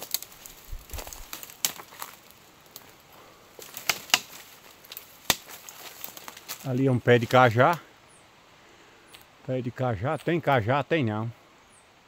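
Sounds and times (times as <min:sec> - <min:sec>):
twigs snapping: 0:00.0 - 0:07.8
dry leaves and twigs crackling: 0:00.0 - 0:08.2, 0:09.0 - 0:09.4.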